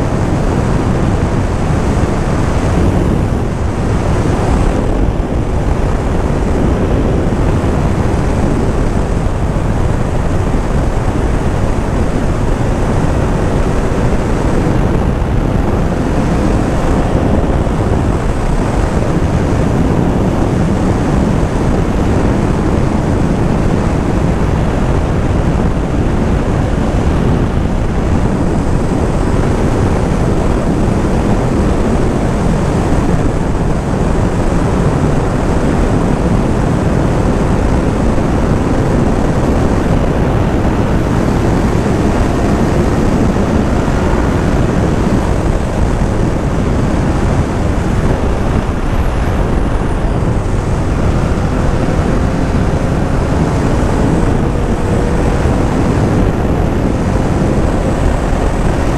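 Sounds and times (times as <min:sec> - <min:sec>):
motorcycle engine running: 0:00.0 - 0:58.9
wind rushing over helmet: 0:00.0 - 0:58.9.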